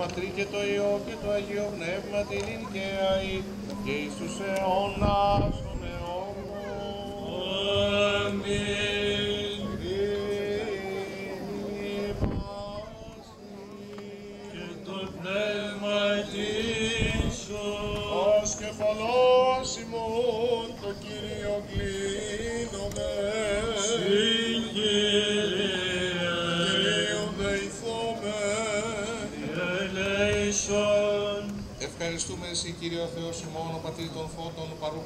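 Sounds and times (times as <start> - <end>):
male voices chanting: 0.0 - 35.0.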